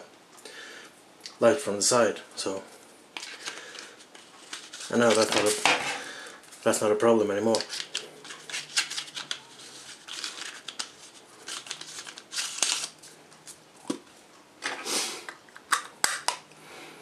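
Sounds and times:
rubbing and rustling scrapes: 3.2 - 6.8, 7.5 - 13.6.

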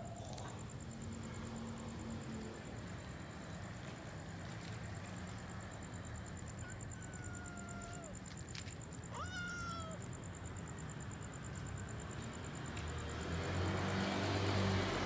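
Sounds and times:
cat meowing: 9.1 - 10.1.

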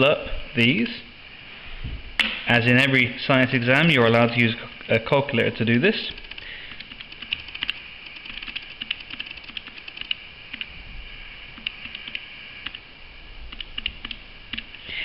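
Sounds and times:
calculator keys clicking: 6.2 - 10.7.

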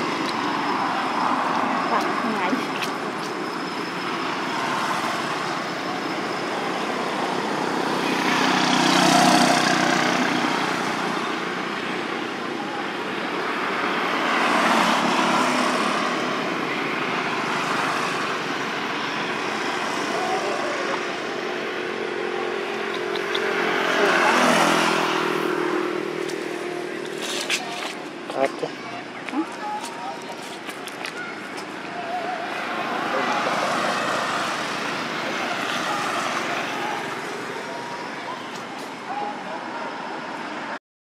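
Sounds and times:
hum of passing vehicles: 0.0 - 40.8.

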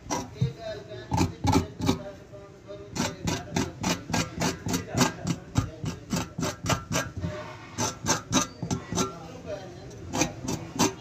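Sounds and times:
rapid regular taps: 0.0 - 2.0, 3.0 - 9.1.

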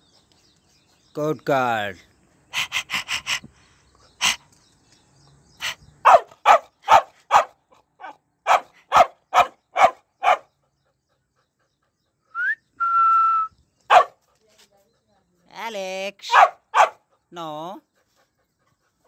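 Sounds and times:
puppy barking: 6.0 - 10.5, 13.9 - 14.2, 16.3 - 17.0.

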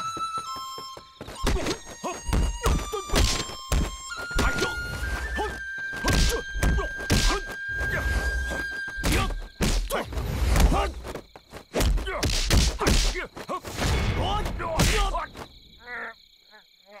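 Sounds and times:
punch and kick hits: 1.4 - 4.8, 6.0 - 7.4, 9.0 - 10.9, 11.7 - 15.1.

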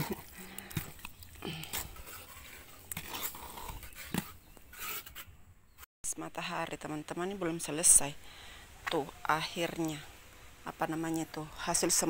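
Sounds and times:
mortar stirred in metal bucket: 0.0 - 5.4.

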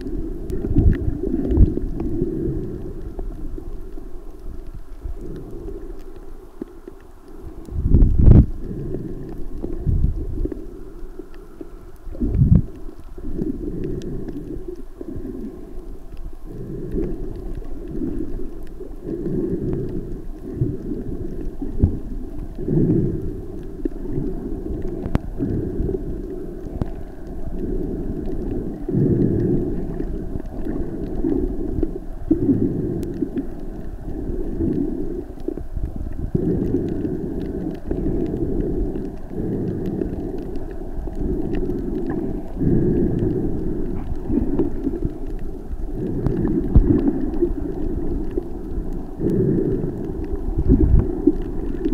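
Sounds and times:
faint clicks: 0.0 - 51.9
underwater rumble and sloshing: 0.0 - 51.9.

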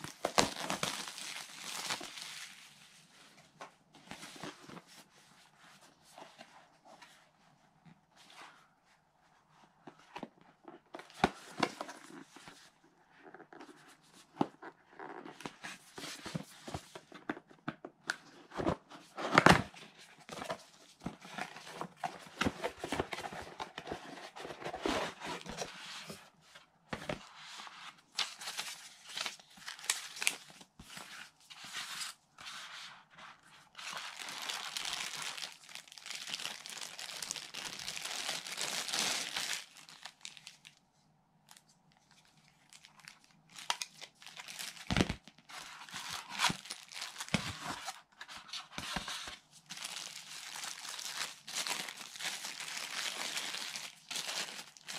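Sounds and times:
plastic bag crinkling: 0.0 - 2.5, 34.1 - 40.7, 49.7 - 54.9
cardboard packaging rustling: 0.0 - 5.1, 18.4 - 32.7, 33.8 - 40.7, 42.6 - 54.9.

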